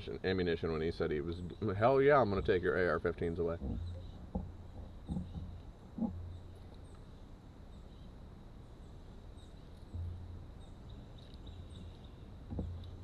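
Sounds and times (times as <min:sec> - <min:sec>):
faint bird chirps: 0:03.7 - 0:13.0.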